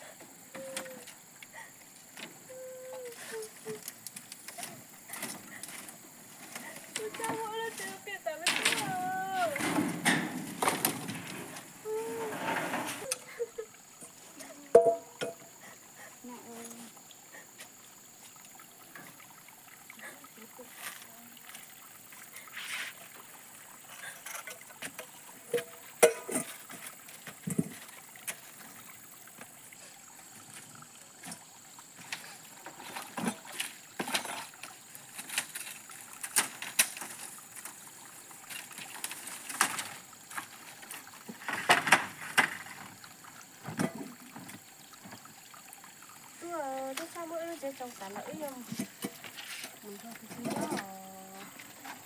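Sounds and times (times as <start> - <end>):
bamboo slats knocking and rustling: 3.3 - 13.1, 14.7 - 15.5, 24.4 - 28.6, 38.6 - 43.0.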